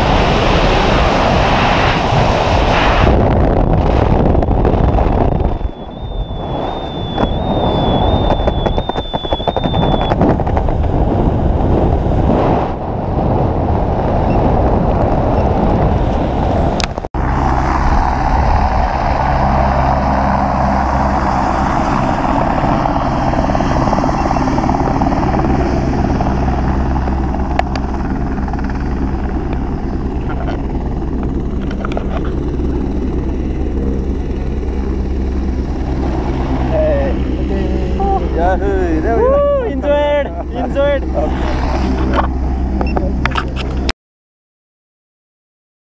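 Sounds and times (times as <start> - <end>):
steady engine-like drone: 0.0 - 43.9
wind rushing over microphone: 0.0 - 43.9
faint warbling whistle: 5.5 - 10.2.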